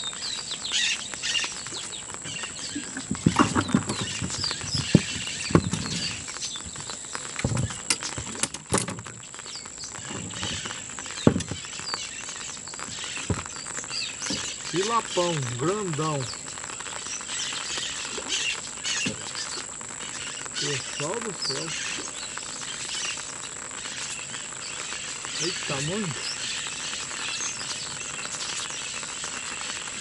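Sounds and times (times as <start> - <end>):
light rain on water: 0.0 - 30.0
steady high-pitched whine: 0.0 - 30.0
fish splashing and thumping: 2.8 - 6.8, 10.0 - 11.7.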